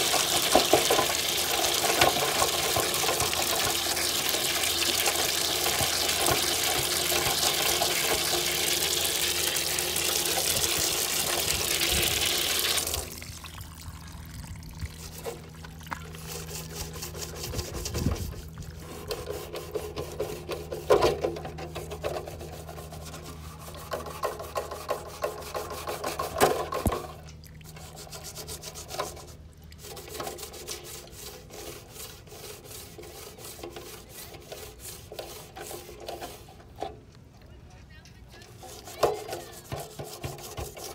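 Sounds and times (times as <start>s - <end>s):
splashing water and scrubbing: 0.0s - 37.4s, 38.3s - 40.9s
rag rubbing on metal tray: 16.2s - 27.0s, 27.7s - 36.9s, 38.5s - 40.9s.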